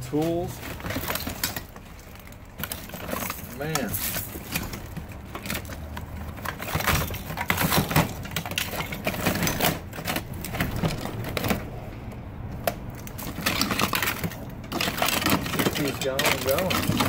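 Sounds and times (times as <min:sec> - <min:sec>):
objects clattering in plastic bin: 0:00.0 - 0:17.0.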